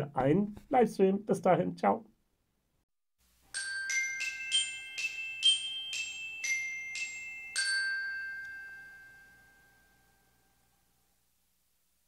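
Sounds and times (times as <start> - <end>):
glockenspiel jingle: 3.5 - 10.7.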